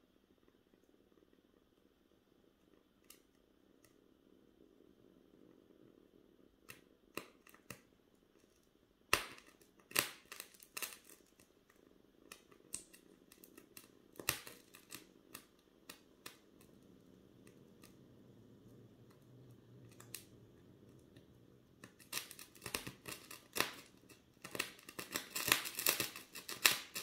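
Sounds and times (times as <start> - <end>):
fire crackling and popping: 5.3 - 27.0.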